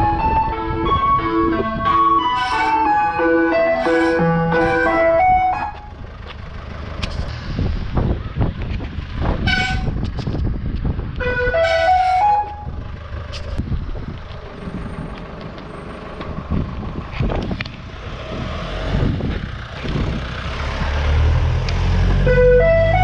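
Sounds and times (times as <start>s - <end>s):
wind rushing: 0.0s - 5.5s, 7.2s - 11.6s, 16.2s - 21.6s
ice cream van chime tune: 0.0s - 6.0s
van engine rumble: 0.0s - 23.0s
wet road noise: 2.3s - 23.0s.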